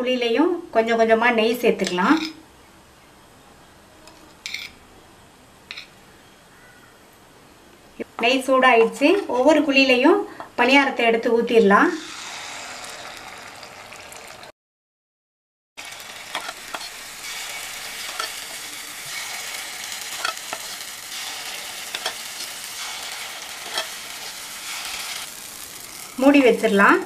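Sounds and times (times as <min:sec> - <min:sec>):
batter sizzling in hot ghee: 0:11.9 - 0:14.5, 0:15.8 - 0:27.0.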